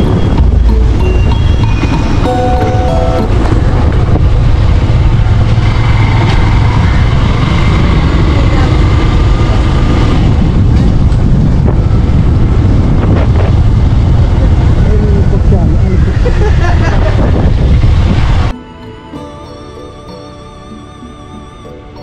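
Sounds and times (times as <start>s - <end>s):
motorcycle engine rumble: 0.0s - 18.5s
wind buffeting microphone: 0.0s - 18.5s.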